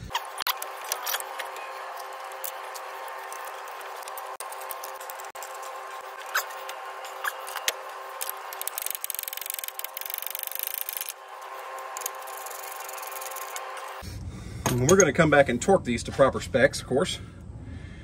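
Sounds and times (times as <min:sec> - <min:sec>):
hand ratchet clicking: 0:08.2 - 0:11.2, 0:12.0 - 0:13.6.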